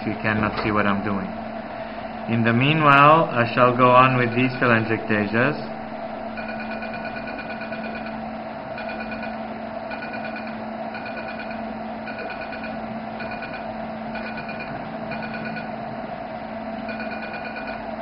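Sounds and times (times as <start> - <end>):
steady low hum: 0.0 - 18.0
short pulsing laser beeps: 6.3 - 8.2, 8.8 - 15.8, 16.9 - 18.0.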